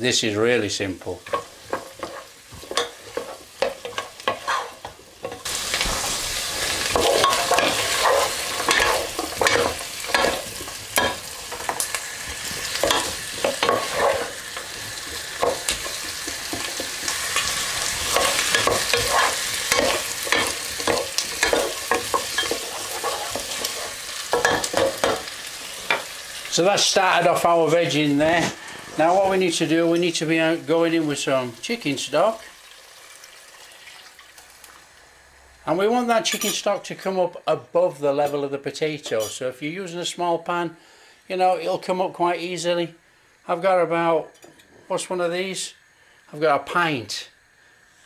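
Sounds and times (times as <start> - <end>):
vegetables sizzling in a pan: 0.0 - 48.0
wooden spoon scraping a pan: 1.2 - 26.1.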